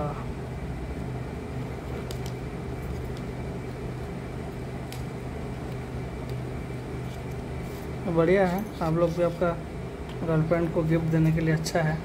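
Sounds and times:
appliance humming: 0.0 - 12.0.

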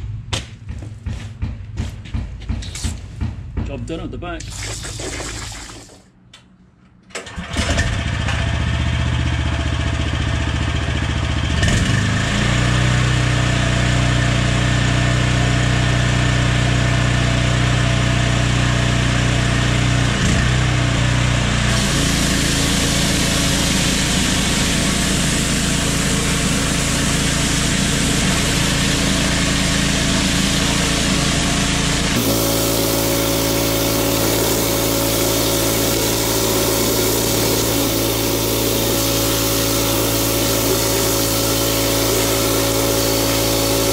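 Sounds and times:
petrol engine running: 18.3 - 43.9
high-pressure water jet hiss: 21.7 - 27.1, 32.2 - 43.9.

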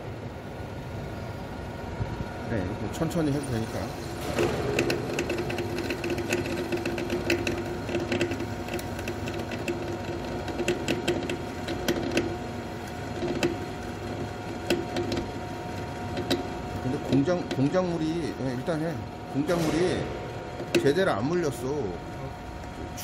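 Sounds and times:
lathe humming: 2.9 - 19.6.

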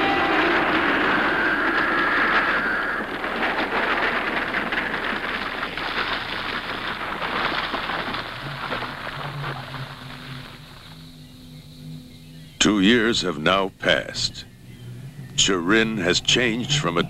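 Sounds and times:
wind-like rushing noise: 0.0 - 10.8.

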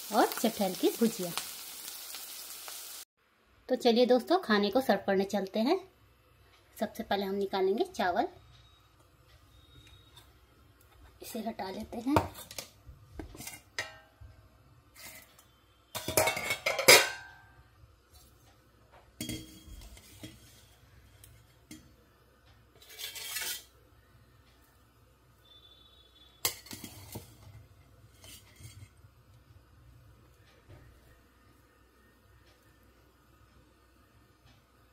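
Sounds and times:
spoon scraping and clinking on pan: 16.0 - 17.4, 19.2 - 20.8, 22.8 - 23.8, 26.4 - 29.0
steel lid clattering down: 16.0 - 17.4.

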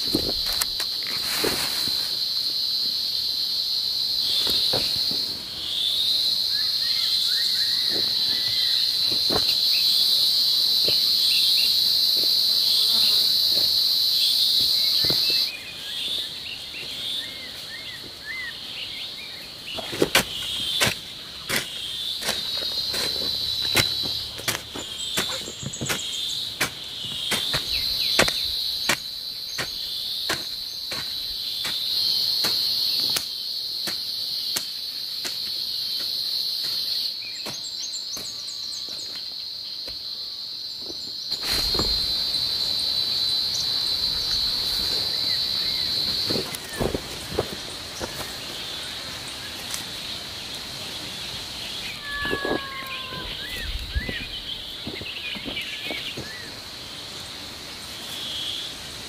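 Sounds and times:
high insect drone: 0.0 - 59.0
garden hoe chopping soil: 19.8 - 35.4, 37.4 - 38.3.

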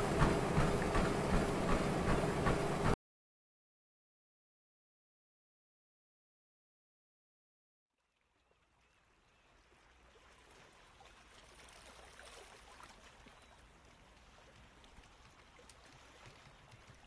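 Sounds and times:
faint running water: 7.9 - 17.0.

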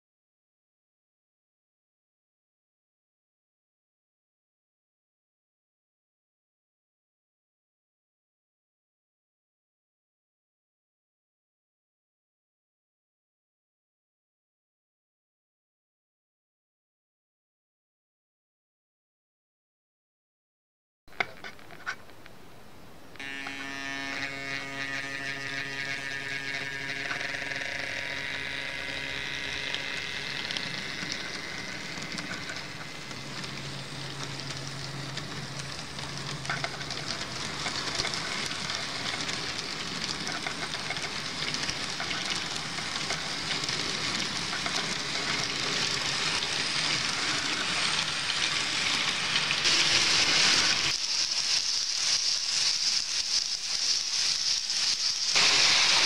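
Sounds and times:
model train wheels rattling: 23.2 - 56.0
small electric motor humming: 23.2 - 56.0.

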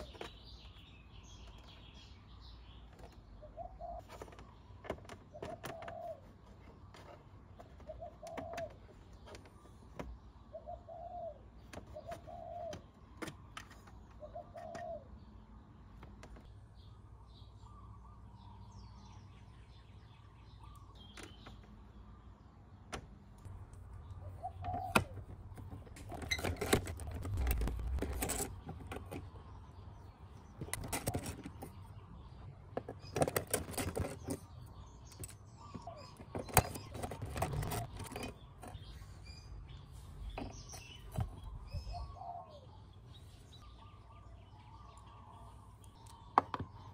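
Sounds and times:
dove cooing: 3.4 - 4.4, 5.3 - 6.6, 7.7 - 9.0, 10.5 - 12.9, 14.2 - 15.1, 24.2 - 25.3, 41.7 - 42.8
clicks and clatter of hand work: 4.0 - 10.2, 22.9 - 29.4, 30.5 - 31.9, 32.7 - 39.1.

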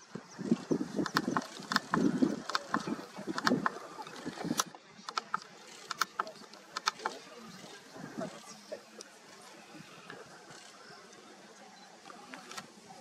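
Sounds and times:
lions chewing and tearing: 0.5 - 7.2.

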